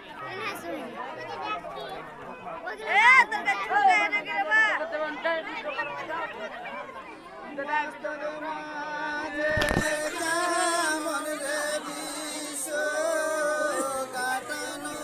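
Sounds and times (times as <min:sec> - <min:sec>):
voices chanting devotional song: 0:07.5 - 0:15.0.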